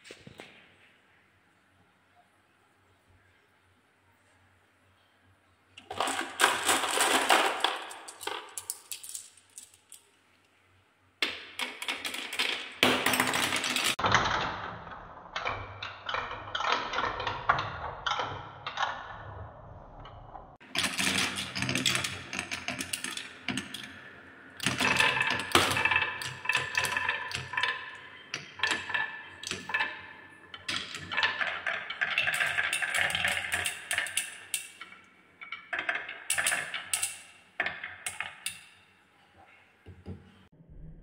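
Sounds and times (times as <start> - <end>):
balls clattering down wooden tracks: 5.8 - 10.2, 11.2 - 14.6, 20.6 - 38.8.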